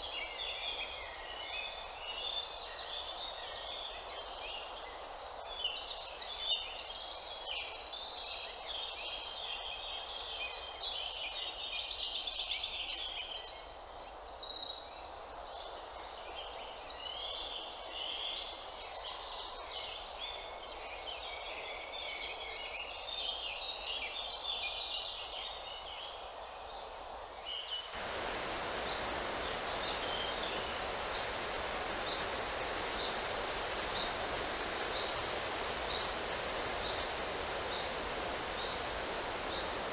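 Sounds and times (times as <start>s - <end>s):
songbirds chirping and trilling: 27.4s - 39.9s
steady rushing noise: 28.0s - 39.9s.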